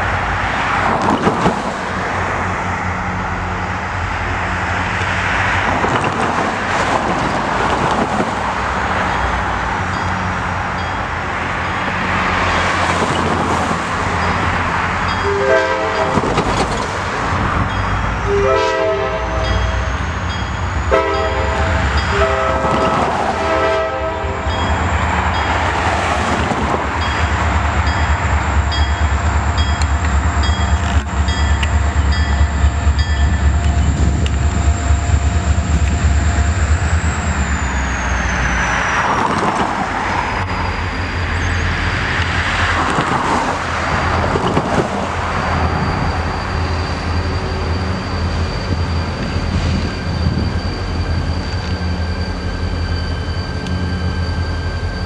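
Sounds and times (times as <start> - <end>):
train passing rumble: 0.0 - 55.0
locomotive air horn blasts: 15.2 - 16.2, 18.2 - 19.9, 20.9 - 24.6.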